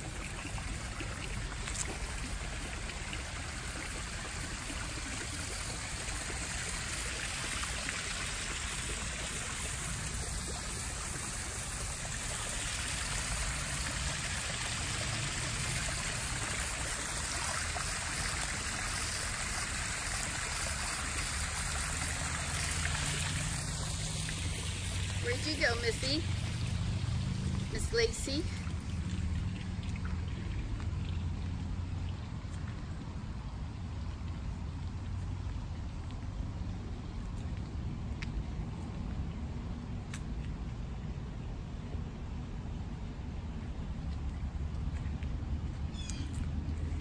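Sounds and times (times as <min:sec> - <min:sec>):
waterfall splashing into pond: 0:00.0 - 0:36.4.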